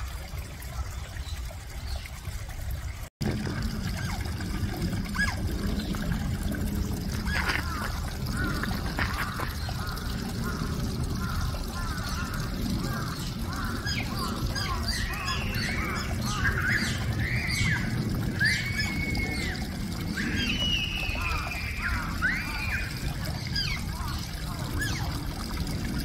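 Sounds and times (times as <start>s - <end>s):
low rumble: 3.2s - 14.4s.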